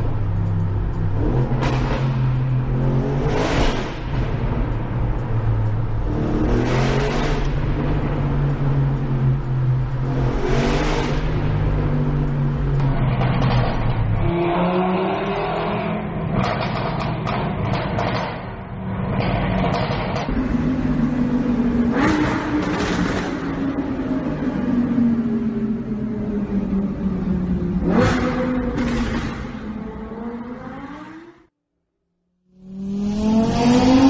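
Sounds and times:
car engine accelerating: 0.0 - 31.5, 32.6 - 34.0
five-cylinder engine revving: 27.5 - 31.4.

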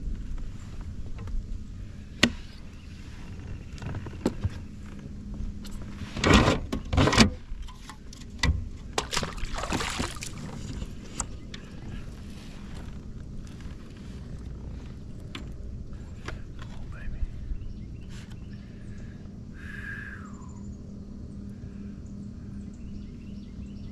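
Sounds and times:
gear knocking and rustling: 3.1 - 17.0.

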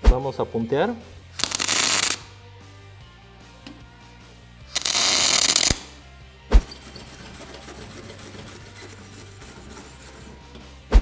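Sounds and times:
welding arc crackling: 1.4 - 2.3, 4.7 - 5.9
wire brush scratching metal: 6.6 - 10.5.

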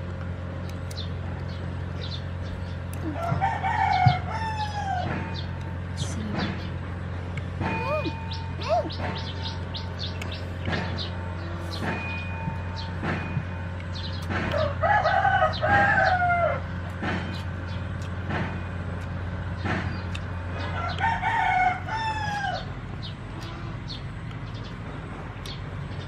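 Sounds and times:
rooster crowing: 3.2 - 5.4, 14.5 - 16.7, 20.7 - 22.8.

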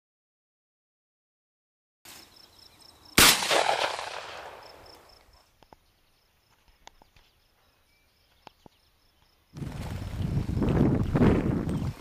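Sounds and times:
shotgun shot: 3.2 - 4.8.

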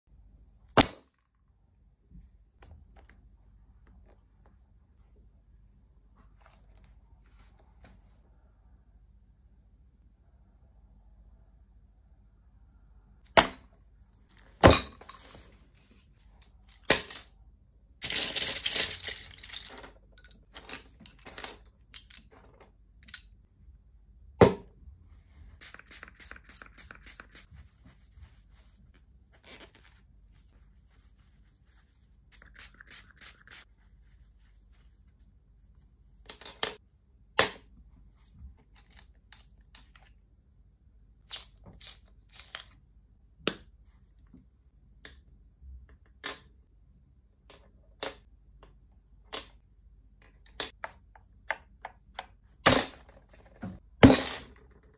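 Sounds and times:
faint rubbing of paper tissue: 25.1 - 36.2.

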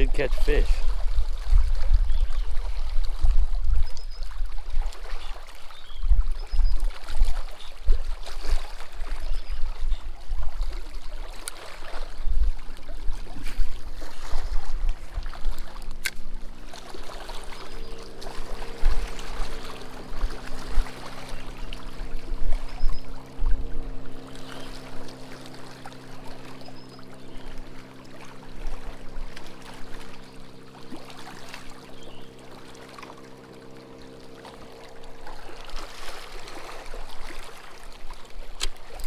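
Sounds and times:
small waves lapping on rocks: 0.0 - 39.0.

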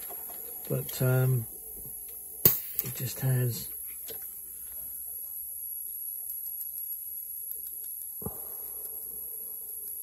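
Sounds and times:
click: 6.3 - 8.1.

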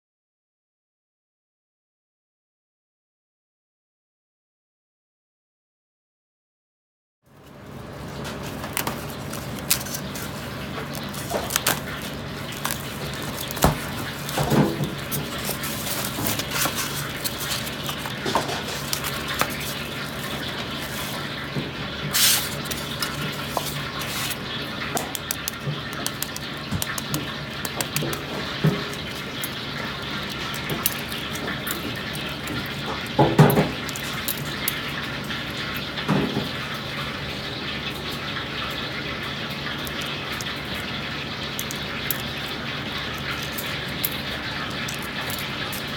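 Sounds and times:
egg shell cracking: 8.4 - 21.5, 22.1 - 35.5.

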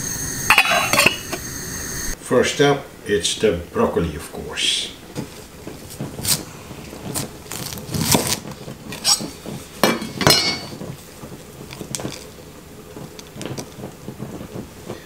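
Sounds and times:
clicks and rustling: 5.2 - 15.0.

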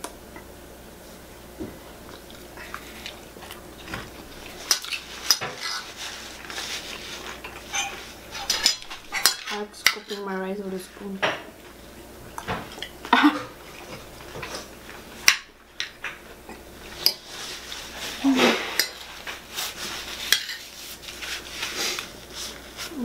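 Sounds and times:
cutlery clinking on ceramic plate: 7.5 - 10.3.

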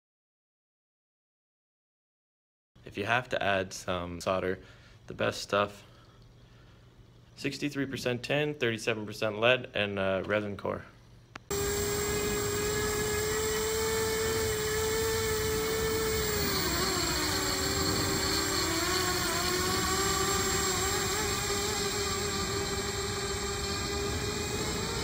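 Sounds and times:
quadcopter motors whining: 11.5 - 25.0.

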